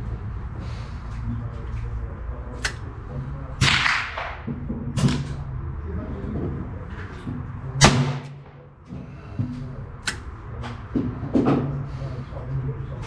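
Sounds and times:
steady low hum: 0:00.0 - 0:13.0
revolver shots: 0:03.6 - 0:05.4.

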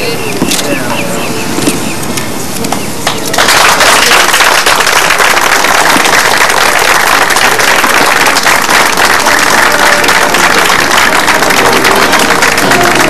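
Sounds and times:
crowd applause: 0:03.0 - 0:13.0.

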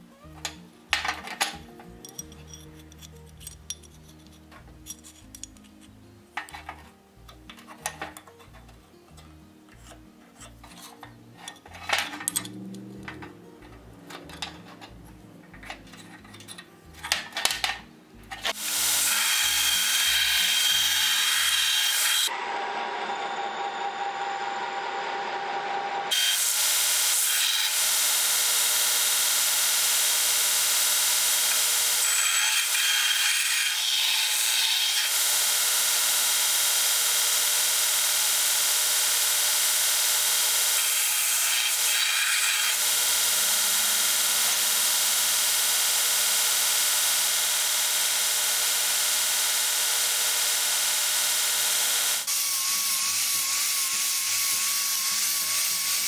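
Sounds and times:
belt grinder grinding steel: 0:09.8 - 0:16.6, 0:18.3 - 0:22.7, 0:26.1 - 0:56.0.

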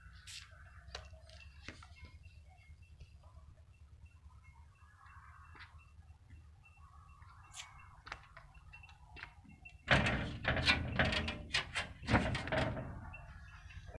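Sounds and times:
sheet-metal gate rattling and banging: 0:09.8 - 0:13.2.

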